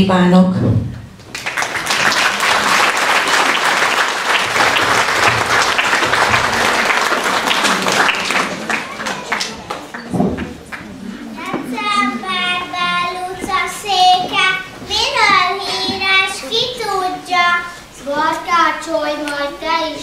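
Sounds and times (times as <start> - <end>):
audience applauding: 1.2 - 12.4.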